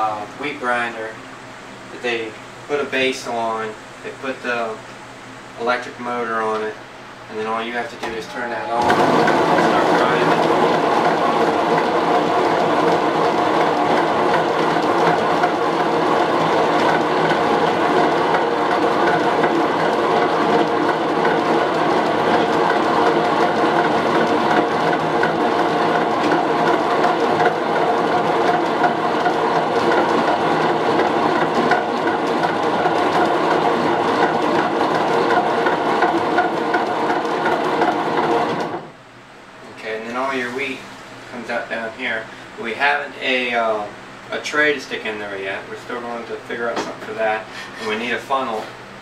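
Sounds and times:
grain mill grinding wheat: 7.5s - 38.9s.

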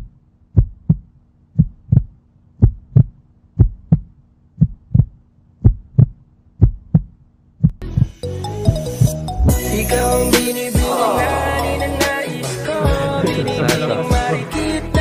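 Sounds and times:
heartbeat double thump: 0.0s - 8.8s.

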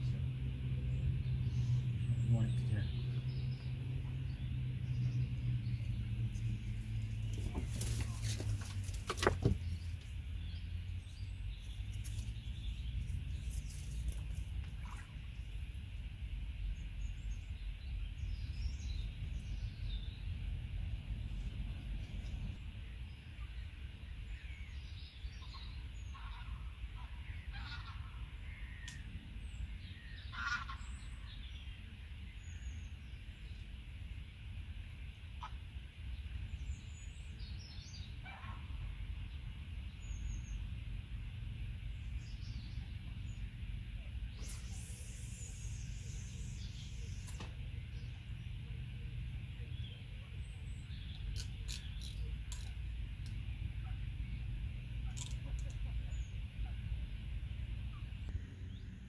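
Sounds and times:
steady low rumble: 0.0s - 59.0s
short bird calls: 30.0s - 31.4s, 44.2s - 48.2s.

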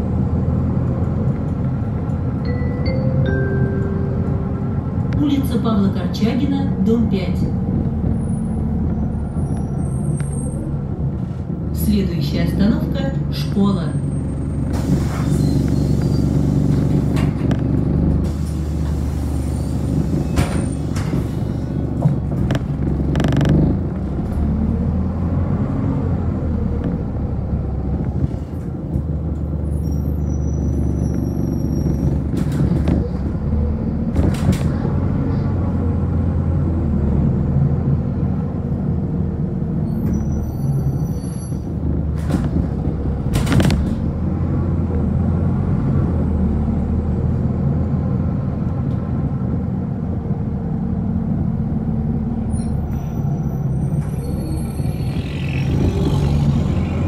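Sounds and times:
bus engine rumbling: 0.0s - 57.0s
body rattles and knocks: 20.4s - 24.2s, 31.9s - 33.4s.

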